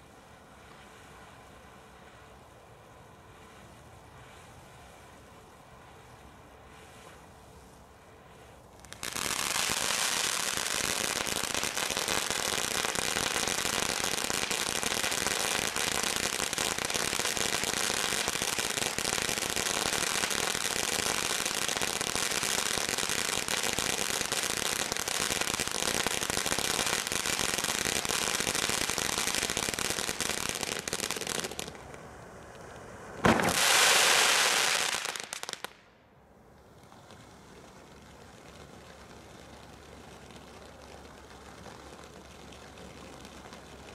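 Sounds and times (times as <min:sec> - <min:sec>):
firework fountain hissing and crackling: 0:00.0 - 0:35.9, 0:36.5 - 0:43.9
firework bang: 0:33.2 - 0:35.7.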